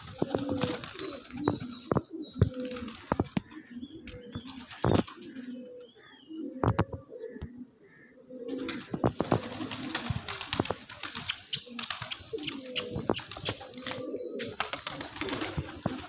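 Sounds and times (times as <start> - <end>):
pigeons cooing: 0.0 - 16.0
sharp clicks and taps: 11.2 - 14.6.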